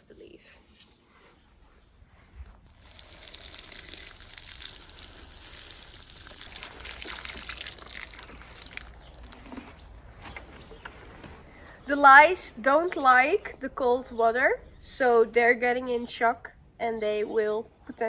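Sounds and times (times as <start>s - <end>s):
water showering onto leaves: 2.7s - 9.4s.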